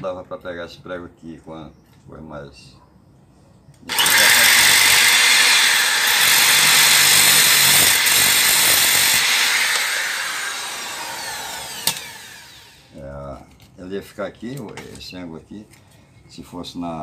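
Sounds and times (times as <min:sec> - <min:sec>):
cut-off disc grinding metal: 0:03.9 - 0:12.9
drill winding down whine: 0:03.9 - 0:13.0.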